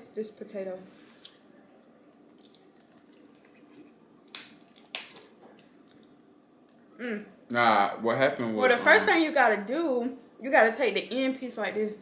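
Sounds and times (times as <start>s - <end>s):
crab shell cracking: 2.1s - 6.2s.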